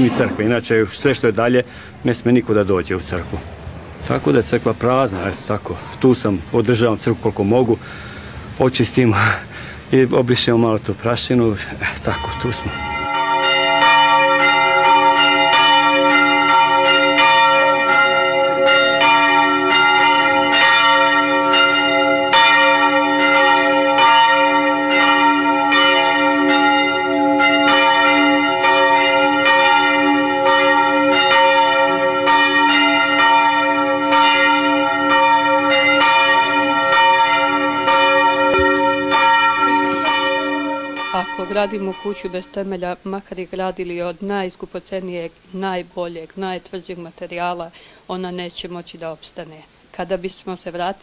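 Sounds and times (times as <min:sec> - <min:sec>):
church bells ringing: 0:00.0 - 0:03.2, 0:11.8 - 0:42.8.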